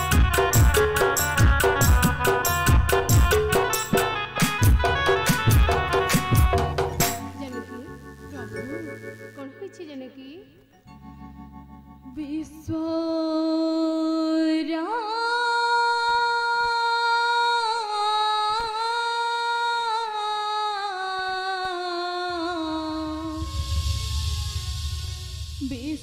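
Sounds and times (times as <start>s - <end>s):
person singing slow melody: 12.1s - 25.6s
low rumble: 22.8s - 26.0s.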